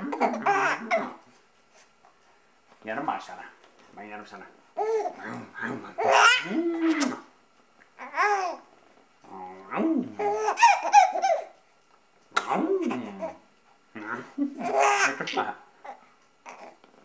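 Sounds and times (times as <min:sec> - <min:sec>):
baby babbling and laughing: 0:00.0 - 0:01.2, 0:04.8 - 0:05.3, 0:06.0 - 0:07.2, 0:08.0 - 0:08.7, 0:09.6 - 0:11.5, 0:14.6 - 0:16.8.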